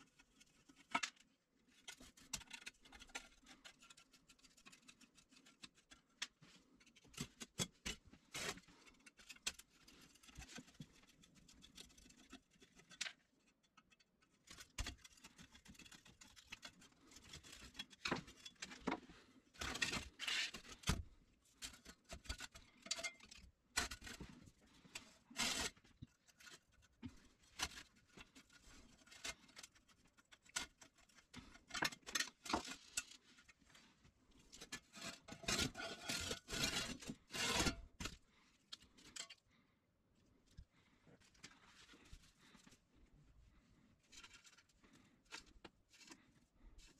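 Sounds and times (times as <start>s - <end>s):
metal parts clicking and scraping: 21.6s - 33.6s, 34.4s - 39.4s.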